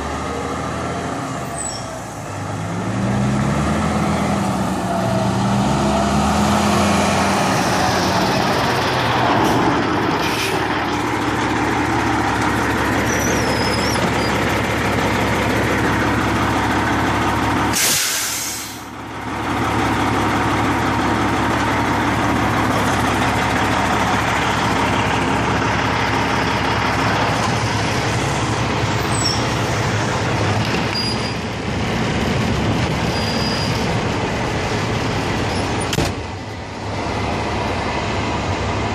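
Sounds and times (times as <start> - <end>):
truck diesel engine running: 0.0 - 38.9
short air hiss: 17.7 - 18.9.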